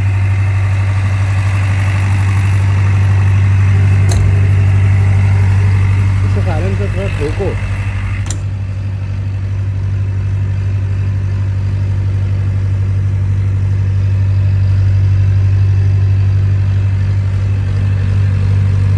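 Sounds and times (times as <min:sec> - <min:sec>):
diesel generator drone: 0:00.0 - 0:18.9
brief sharp click: 0:04.1 - 0:04.3, 0:08.2 - 0:08.5.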